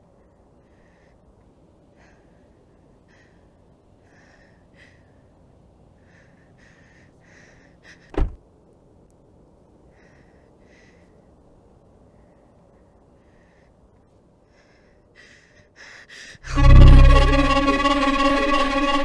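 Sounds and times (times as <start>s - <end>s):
person breathing hard: 0.2s - 8.4s, 9.8s - 16.5s.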